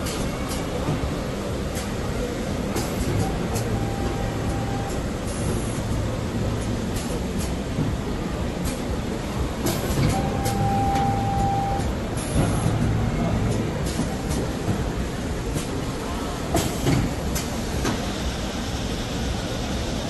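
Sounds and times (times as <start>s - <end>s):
steady high tone: 3.3s - 5.1s, 10.2s - 11.9s.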